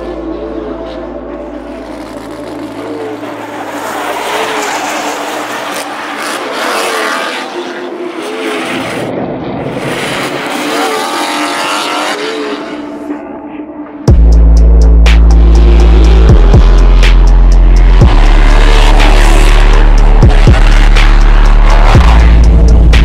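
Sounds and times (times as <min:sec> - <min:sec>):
tires screeching: 0:00.0 - 0:13.5, 0:15.0 - 0:23.0
car engine revving: 0:00.0 - 0:23.0.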